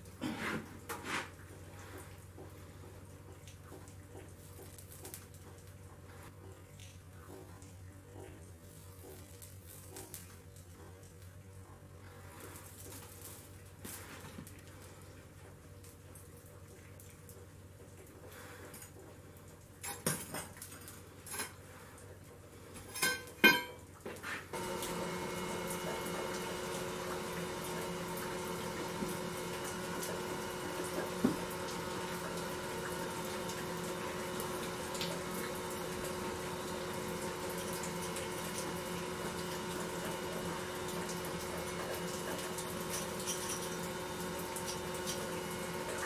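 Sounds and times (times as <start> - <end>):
steady hum with held tones: 24.5 - 46.0.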